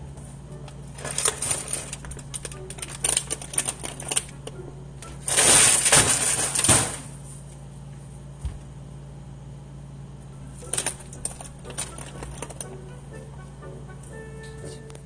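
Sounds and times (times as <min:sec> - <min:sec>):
steady low hum: 0:00.0 - 0:15.0
plastic bag rustling: 0:00.9 - 0:04.3, 0:05.2 - 0:07.3.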